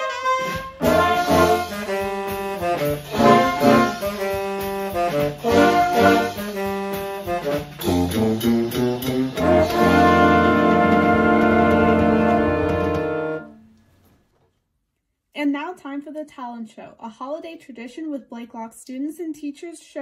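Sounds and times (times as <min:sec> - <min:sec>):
drum kit beat: 0:00.0 - 0:13.5
wind band playing: 0:00.0 - 0:13.7.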